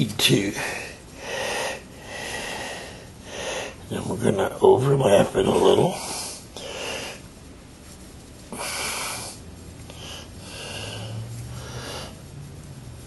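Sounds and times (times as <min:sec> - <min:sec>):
faint low hum: 0:00.0 - 0:13.0
breathing close to microphone: 0:00.6 - 0:03.9, 0:06.0 - 0:07.3, 0:08.4 - 0:12.4.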